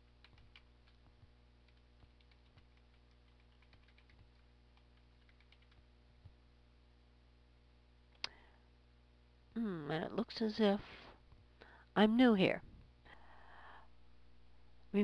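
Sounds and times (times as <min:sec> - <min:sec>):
faint keyboard typing: 0:00.1 - 0:06.4.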